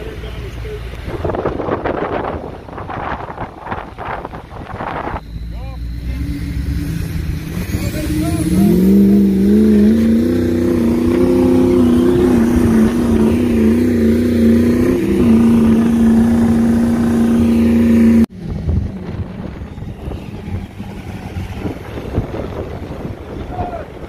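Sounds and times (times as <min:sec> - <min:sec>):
low engine rumble: 0:00.0 - 0:24.0
wind noise: 0:01.0 - 0:05.5, 0:06.2 - 0:24.0
diesel engine revving hard: 0:05.3 - 0:23.5.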